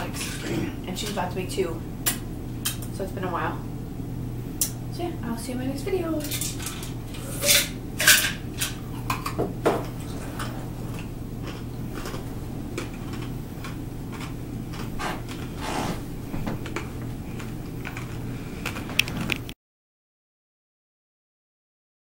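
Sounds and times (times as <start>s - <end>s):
steady low hum: 0.0s - 19.6s
ice chewed and rattled in cup: 10.0s - 15.6s, 16.6s - 19.5s.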